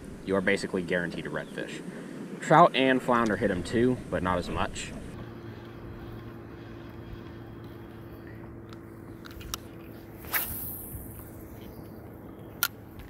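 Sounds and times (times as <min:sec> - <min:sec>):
faint steady hum: 0:00.0 - 0:13.0
fishing rod swish: 0:09.8 - 0:11.8.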